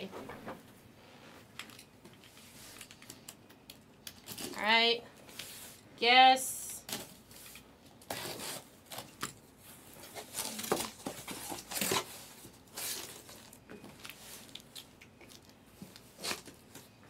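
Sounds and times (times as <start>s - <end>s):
cardboard and tape tearing: 6.8s - 9.4s, 10.0s - 14.6s, 16.0s - 16.6s.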